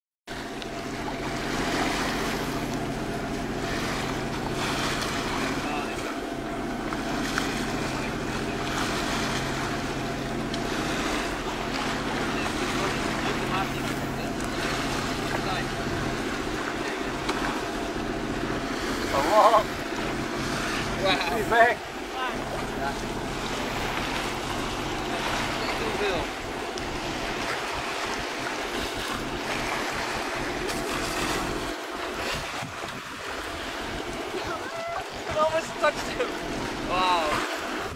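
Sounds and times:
steady low hum: 0:00.3 - 0:37.9
water rushing along hull: 0:00.3 - 0:37.9
wind buffeting microphone: 0:13.2 - 0:37.9
wind on microphone: 0:26.8 - 0:35.7.

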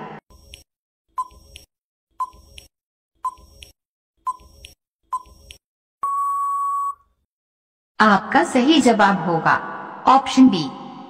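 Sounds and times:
buzzer-like beep: 0:01.2 - 0:01.6, 0:06.0 - 0:07.0.

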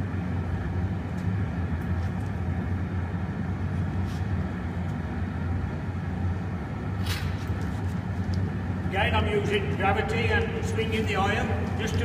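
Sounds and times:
furnace low rumble: 0:00.0 - 0:12.0.

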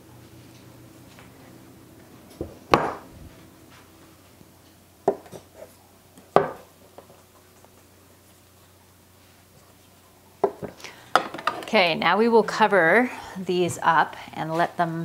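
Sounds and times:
dishes knocking on wooden counter: 0:02.4 - 0:03.0, 0:05.0 - 0:05.4, 0:06.4 - 0:06.7, 0:10.4 - 0:11.7.

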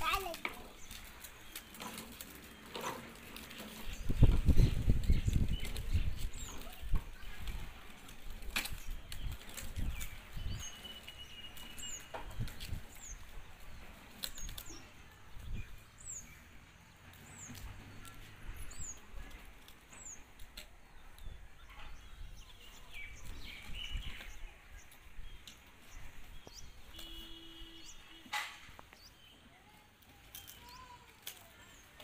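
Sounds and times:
plastic tricycle rolling on concrete: 0:00.0 - 0:32.0.

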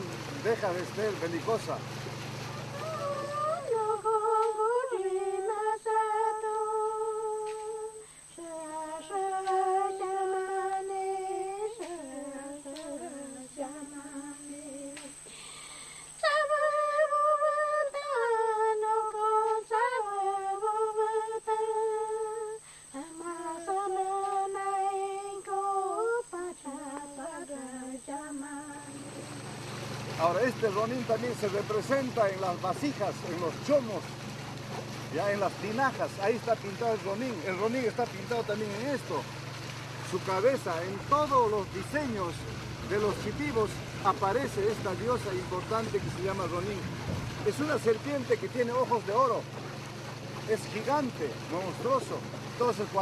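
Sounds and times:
woman singing chant: 0:02.6 - 0:15.3, 0:16.2 - 0:29.3.

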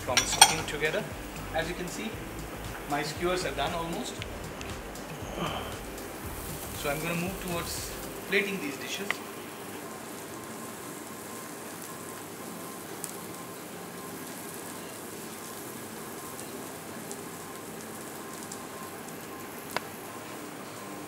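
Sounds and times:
prawns sizzling on a grill: 0:00.0 - 0:21.0.

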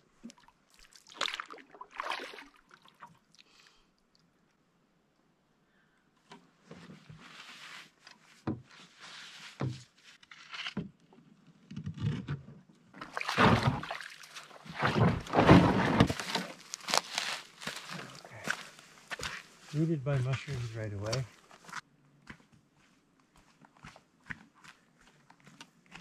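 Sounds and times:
paddle strokes swishing water: 0:00.0 - 0:03.4, 0:13.0 - 0:16.6
canoe scraping against bank: 0:13.1 - 0:18.4.

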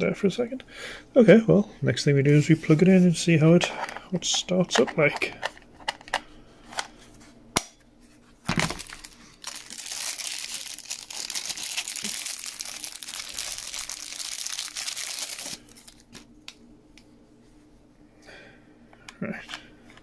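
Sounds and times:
thin plastic crinkling: 0:08.5 - 0:16.3.

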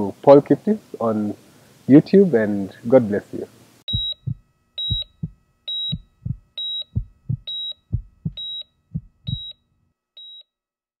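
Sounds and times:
heart monitor beeps: 0:03.9 - 0:09.6, 0:10.2 - 0:10.5
heartbeat thumps: 0:03.9 - 0:09.6.

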